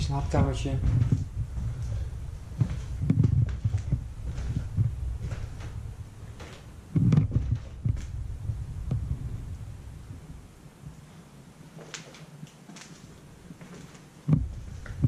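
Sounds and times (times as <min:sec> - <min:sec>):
debris crackling underfoot: 0:00.0 - 0:09.6, 0:11.7 - 0:15.0
low steady rumble: 0:00.0 - 0:11.8, 0:13.1 - 0:15.0
footsteps on debris: 0:00.1 - 0:08.2, 0:11.8 - 0:15.0.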